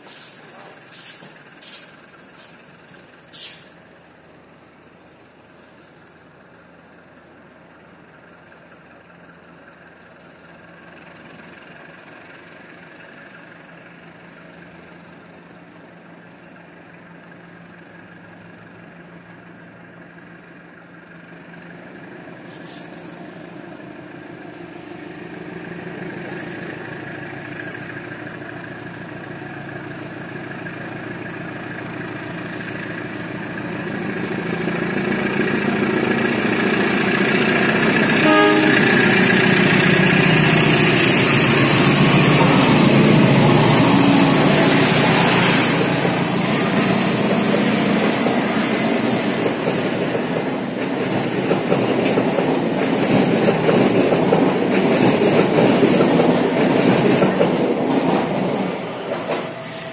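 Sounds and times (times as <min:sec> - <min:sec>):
train wheels on rails: 0:00.0 - 0:07.5, 0:21.6 - 0:59.9
diesel locomotive engine: 0:00.0 - 0:59.9
train horn toot: 0:38.1 - 0:39.6.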